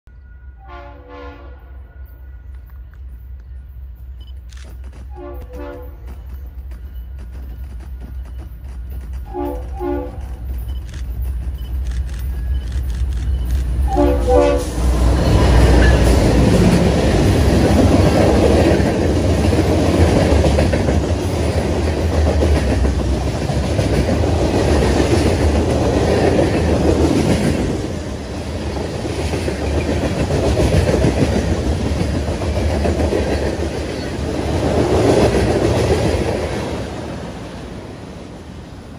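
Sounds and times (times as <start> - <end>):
train air horn blast: 0.4 - 2.1, 5.1 - 6.1, 9.3 - 10.4, 13.9 - 15.1
locomotive diesel engines passing: 2.7 - 38.9
train wheels clacking over rail joints: 4.6 - 14.0, 14.7 - 36.7.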